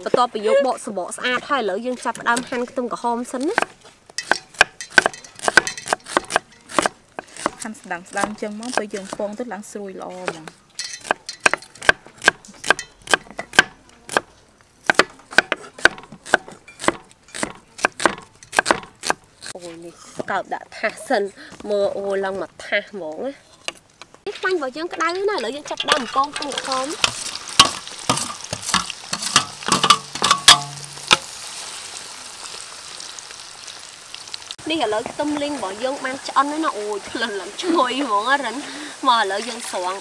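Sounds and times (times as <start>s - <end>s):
knife chopping on wooden board: 3.6s - 7.6s, 11.0s - 19.2s
metal clinks and scrapes in wok: 3.8s - 6.8s, 10.7s - 11.9s, 12.7s - 13.5s, 24.9s - 31.3s
oil frying sizzle: 24.6s - 40.0s.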